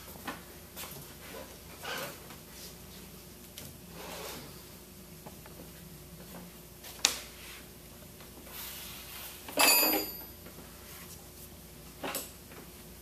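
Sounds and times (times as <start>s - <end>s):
metallic clank with ringing: 9.6s - 10.4s.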